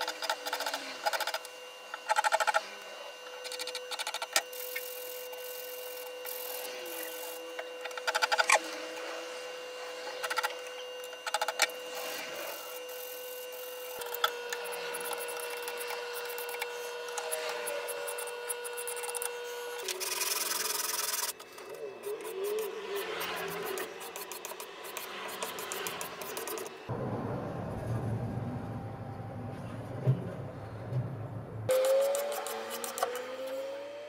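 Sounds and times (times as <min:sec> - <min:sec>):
sanding wood by hand: 0:11.3 - 0:21.3.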